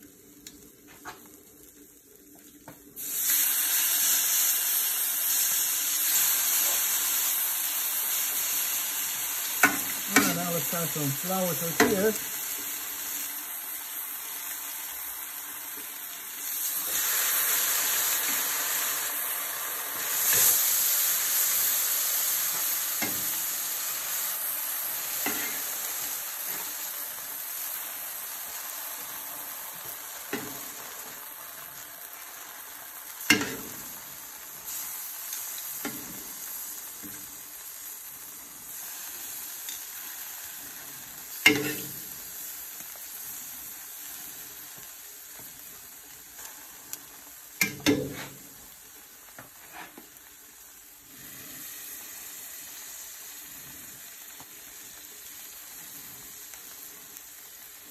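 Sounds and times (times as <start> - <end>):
food sizzling on a griddle: 0.0 - 57.9.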